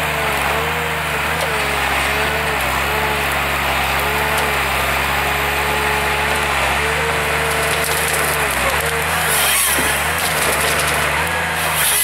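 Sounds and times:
diesel engine drone: 0:00.0 - 0:12.0
hydraulic whine: 0:01.2 - 0:12.0
wood and snow crackling: 0:06.4 - 0:12.0.

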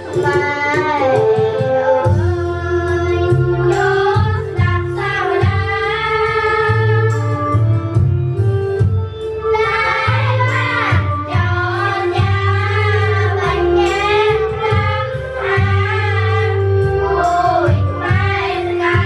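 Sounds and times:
instrumental backing with bass line: 0:00.0 - 0:19.0
girls singing together: 0:02.8 - 0:07.2, 0:09.5 - 0:19.0.

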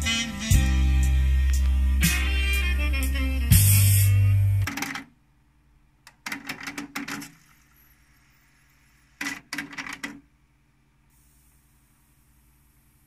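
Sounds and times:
cassette mechanism clicking: 0:04.7 - 0:05.1, 0:06.0 - 0:07.3.

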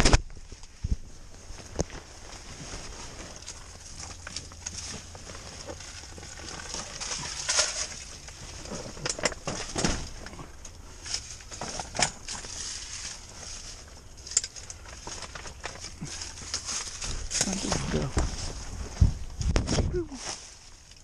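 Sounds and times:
fabric rustling: 0:00.8 - 0:09.0.

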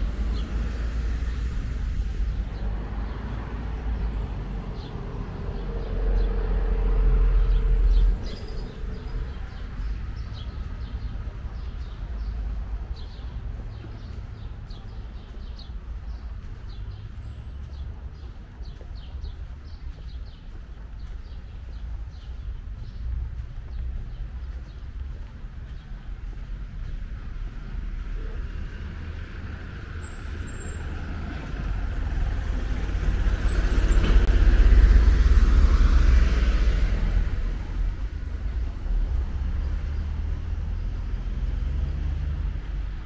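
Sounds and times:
birds chirping: 0:00.0 - 0:34.7
faint background traffic: 0:00.0 - 0:43.0
vehicle rumble: 0:00.0 - 0:43.0.

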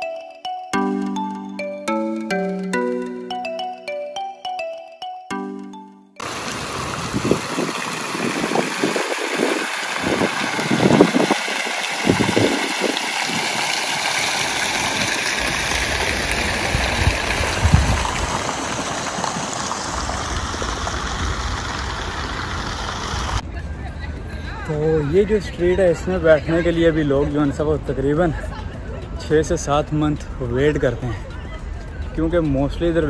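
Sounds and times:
fountain water splashing: 0:06.2 - 0:23.4.

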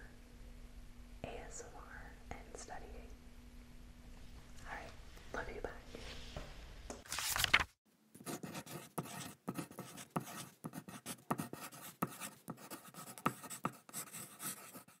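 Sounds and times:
pen writing on paper: 0:08.2 - 0:15.0.

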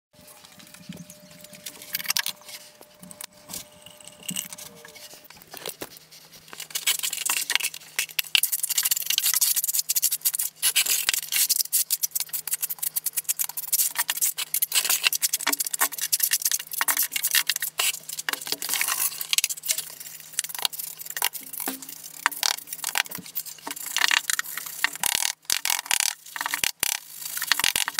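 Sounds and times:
faint steady hum: 0:00.2 - 0:27.9.

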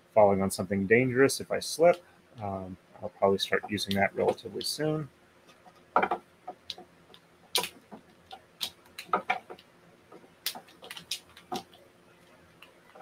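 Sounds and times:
wooden bobbins clicking together: 0:05.5 - 0:11.8.

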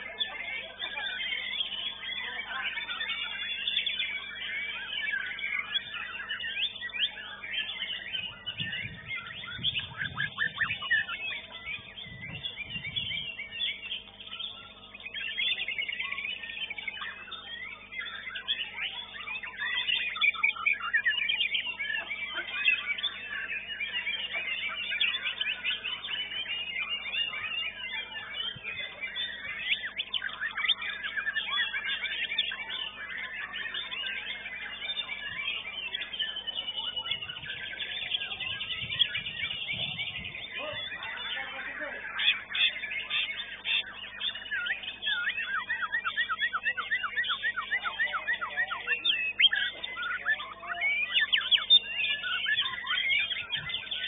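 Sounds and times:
chorus of songbirds singing: 0:00.0 - 0:54.0.

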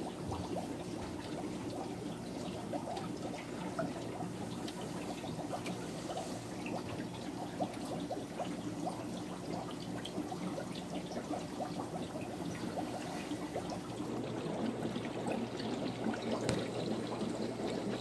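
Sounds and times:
aquarium filter water bubbling: 0:00.0 - 0:18.0
small bubble pops: 0:15.3 - 0:17.3.

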